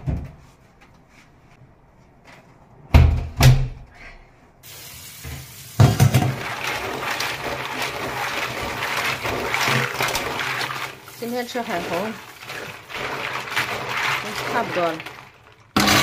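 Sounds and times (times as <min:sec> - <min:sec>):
tap water running into metal bowl: 0:05.0 - 0:16.0.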